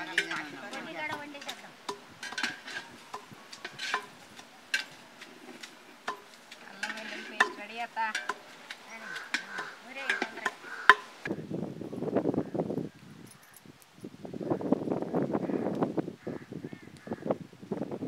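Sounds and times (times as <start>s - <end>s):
pestle pounding in stone mortar: 0.0s - 11.2s
ladle stirring in metal pot: 0.0s - 11.3s.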